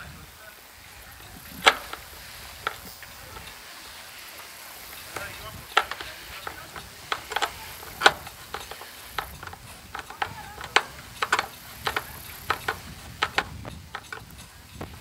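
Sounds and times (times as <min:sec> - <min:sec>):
screwdriver clicking: 0:05.2 - 0:14.4.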